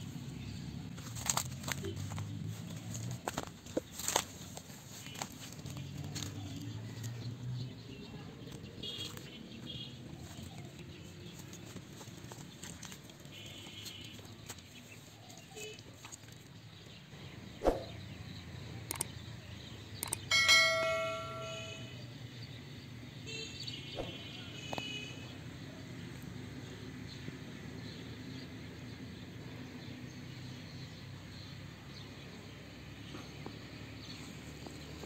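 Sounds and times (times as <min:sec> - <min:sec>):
bell-like ding: 0:20.3 - 0:22.0.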